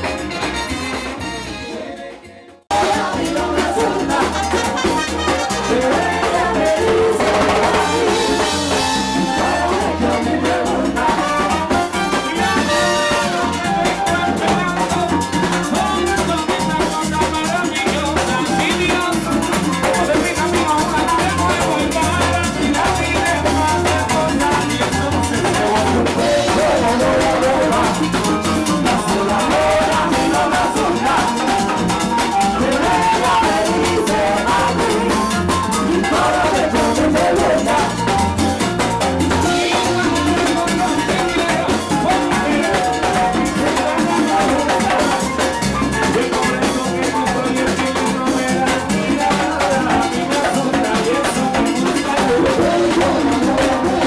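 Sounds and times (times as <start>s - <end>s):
drum kit and congas: 0.0s - 54.0s
frame drums: 0.0s - 54.0s
person singing: 1.3s - 54.0s.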